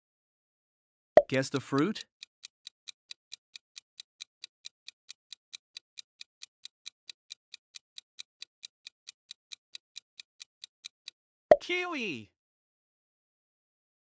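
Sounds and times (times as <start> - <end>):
quick clock-like ticks: 1.4 - 11.2.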